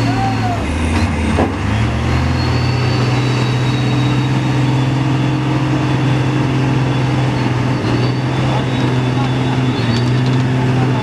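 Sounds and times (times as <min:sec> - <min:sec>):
truck diesel engine under load: 0:00.0 - 0:11.0.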